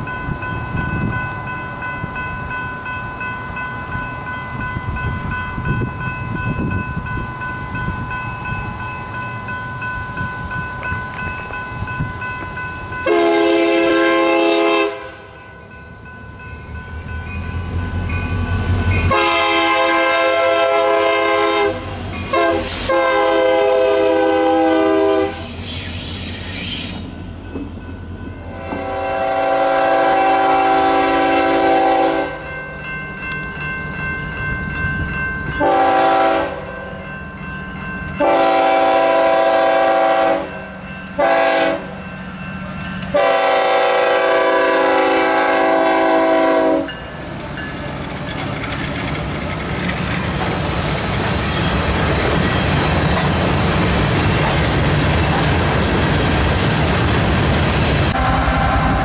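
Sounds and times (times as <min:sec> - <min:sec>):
low train rumble: 0:00.0 - 0:59.0
locomotive air horn blasts: 0:13.0 - 0:15.3, 0:19.1 - 0:25.6, 0:28.5 - 0:32.4, 0:35.6 - 0:36.7, 0:38.2 - 0:40.6, 0:41.2 - 0:41.9, 0:43.1 - 0:47.0, 0:58.1 - 0:59.0.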